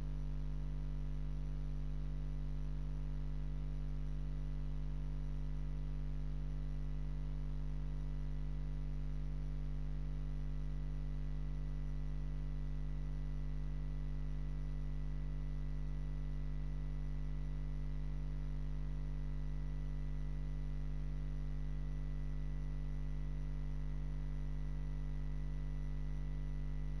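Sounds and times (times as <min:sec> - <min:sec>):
electrical mains hum: 0:00.0 - 0:27.0.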